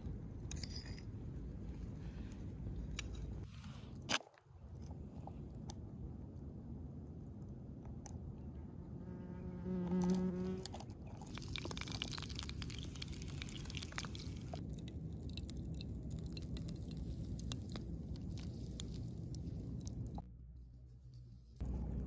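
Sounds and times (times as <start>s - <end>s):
bee buzzing: 9.0s - 10.6s.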